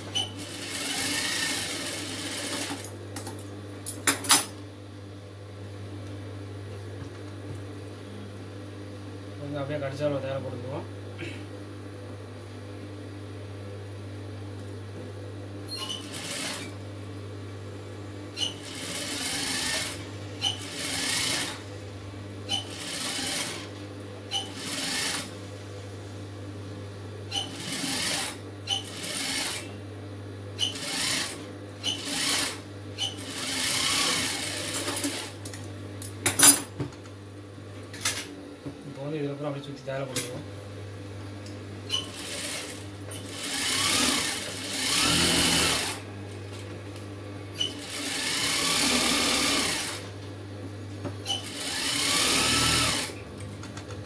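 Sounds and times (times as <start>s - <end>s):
sewing machine motor humming: 0.0s - 2.9s, 15.8s - 16.8s, 18.4s - 21.6s, 22.5s - 23.7s, 24.3s - 25.4s, 27.4s - 29.7s, 30.6s - 35.4s, 41.9s - 46.1s, 47.6s - 50.1s, 51.2s - 53.7s
sewing machine stitching: 0.1s - 2.9s, 15.8s - 16.8s, 18.4s - 21.6s, 22.5s - 23.7s, 24.3s - 25.3s, 27.3s - 29.7s, 30.6s - 35.4s, 41.9s - 46.0s, 47.6s - 50.1s, 51.2s - 53.2s.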